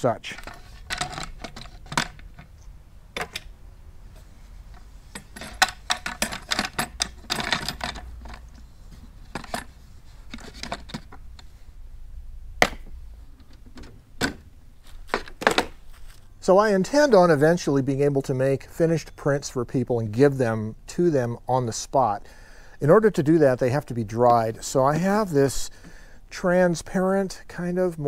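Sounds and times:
wood knocking on wood and metal: 12.6s - 13.0s, 15.1s - 15.8s.

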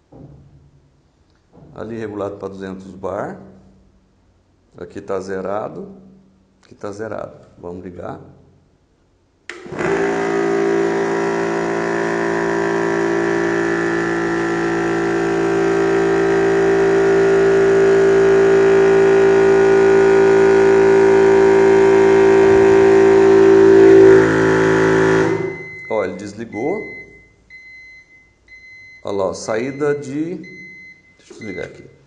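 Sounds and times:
high-pressure air compressor running: 9.5s - 25.9s.

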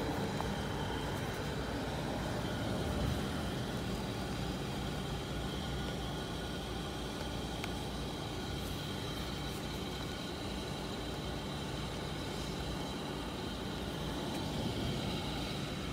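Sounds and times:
distant road traffic: 0.0s - 15.9s.

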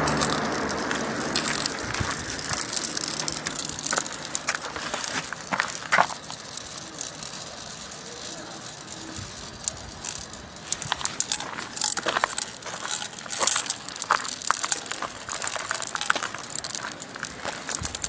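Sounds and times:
marbles rolling and clattering in stone: 0.0s - 18.0s.

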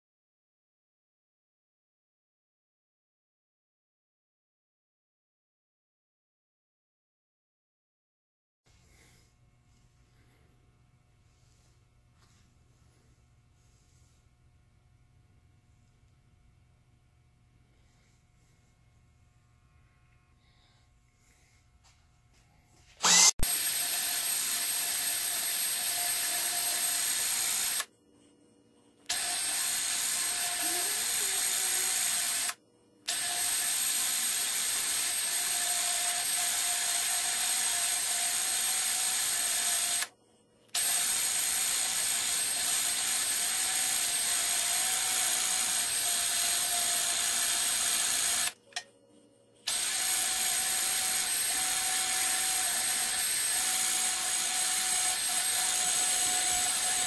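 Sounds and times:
drill grinding hiss: 23.0s - 27.9s, 29.0s - 40.1s, 40.7s - 48.9s, 49.6s - 57.0s.

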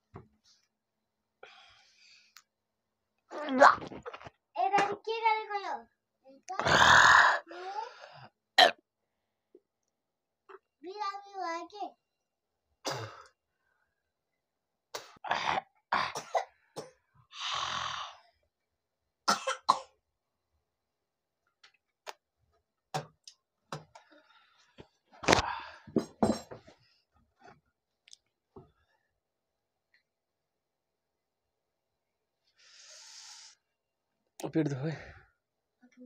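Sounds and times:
man coughing and spluttering: 12.8s - 13.2s, 16.0s - 17.0s, 19.3s - 20.0s
harsh breath out: 32.6s - 33.7s.

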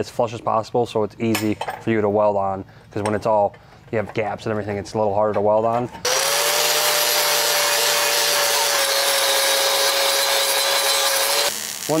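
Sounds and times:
angle grinder grinding metal: 6.0s - 12.0s.

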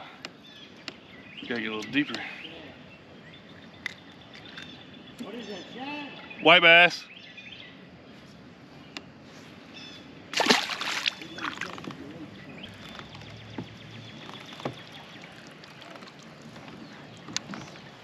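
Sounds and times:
fish splashing into water: 10.3s - 11.9s.

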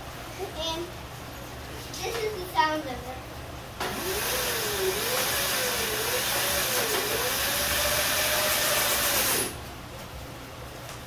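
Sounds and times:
electric motor whine with hiss: 3.8s - 9.6s.

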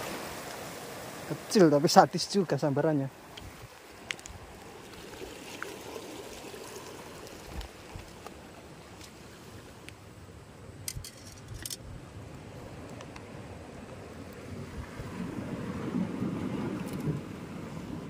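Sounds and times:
water washing on rocky shore: 0.0s - 9.8s.

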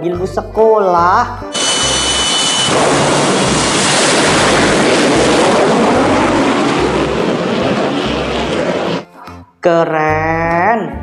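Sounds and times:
thin high whine: 1.5s - 5.7s
jet engine at full power: 1.5s - 9.0s.

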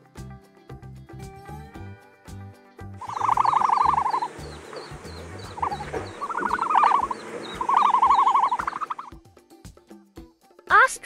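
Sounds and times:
background music: 0.0s - 11.0s
faint chirp: 3.0s - 9.1s
pulsed trilling calls: 3.0s - 9.1s.

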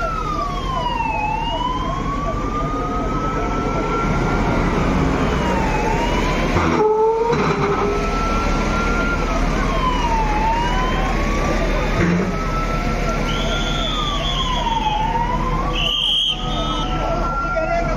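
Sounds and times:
diesel engine running: 0.0s - 17.9s
emergency siren wailing: 0.0s - 17.9s
fast warbling siren tone: 12.1s - 17.8s.

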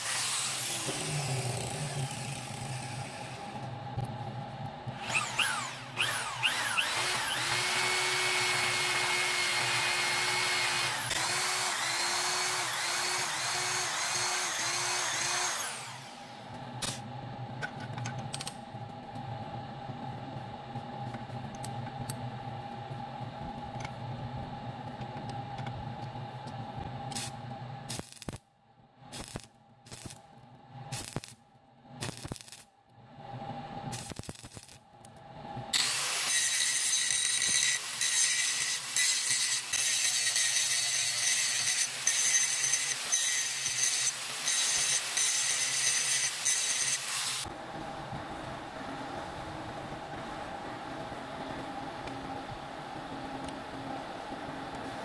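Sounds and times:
angle grinder whine: 0.0s - 3.7s, 4.9s - 16.5s
workshop hum: 0.0s - 55.0s
arc welding hiss: 27.2s - 28.4s, 29.1s - 30.2s, 30.9s - 31.4s, 32.0s - 32.6s, 33.9s - 34.8s.

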